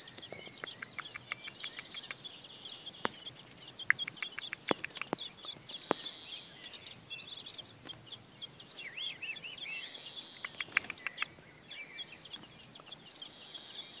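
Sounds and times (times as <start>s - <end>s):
nestlings cheeping: 0.0s - 9.1s
sharp clicks: 0.1s - 2.2s, 3.8s - 6.1s, 10.4s - 11.3s.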